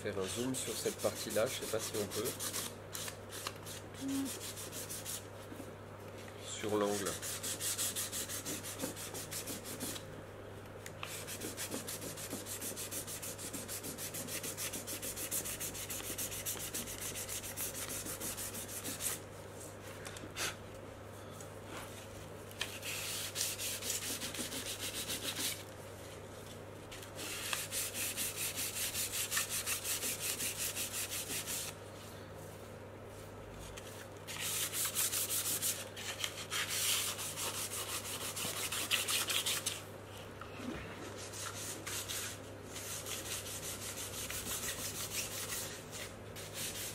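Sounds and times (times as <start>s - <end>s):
sandpaper rubbing on wood: 0.7s - 5.2s, 6.8s - 10.0s, 11.1s - 19.2s, 22.8s - 25.6s, 27.2s - 31.7s, 34.3s - 39.8s, 41.2s - 46.9s.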